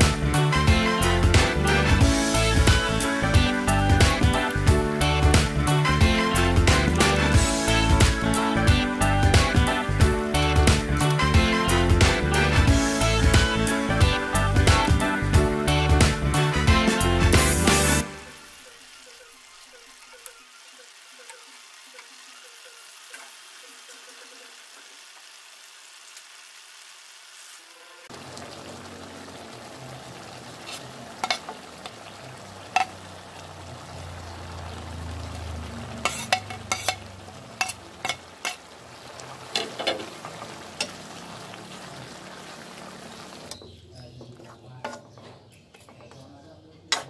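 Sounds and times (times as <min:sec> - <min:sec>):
curry sizzling and bubbling: 0:00.0 - 0:46.2.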